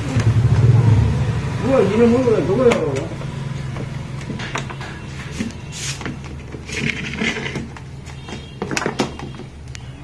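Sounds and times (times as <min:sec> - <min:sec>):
plastic casing clicks and knocks: 0:06.8 - 0:09.6.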